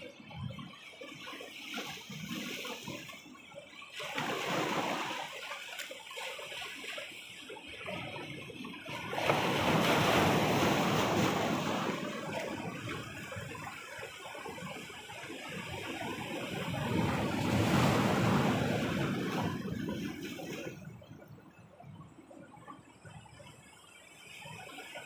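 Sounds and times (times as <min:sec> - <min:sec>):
sea waves crashing on boulders: 0:04.0 - 0:05.9, 0:08.9 - 0:21.0.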